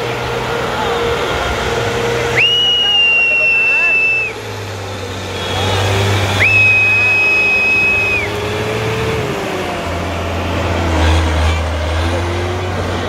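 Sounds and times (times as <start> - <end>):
tractor engine running: 0.0 - 13.0
shrill whistle: 2.4 - 4.4, 5.3 - 8.4.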